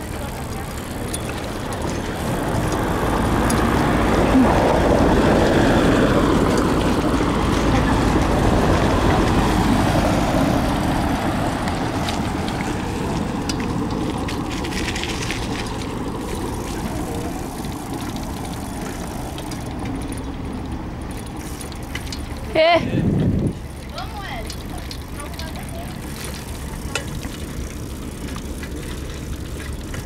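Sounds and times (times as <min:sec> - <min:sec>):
wind buffeting microphone: 0:00.0 - 0:21.0, 0:22.4 - 0:30.0
bicycle tyres rolling over paving: 0:00.0 - 0:30.0
light clicks and rattles: 0:11.6 - 0:30.0.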